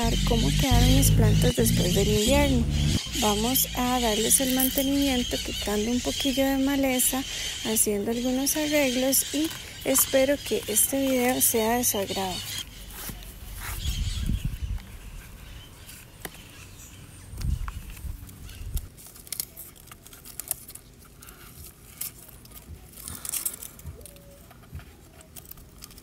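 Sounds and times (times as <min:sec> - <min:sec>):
dry leaves crackling and rustling: 0:14.9 - 0:26.0.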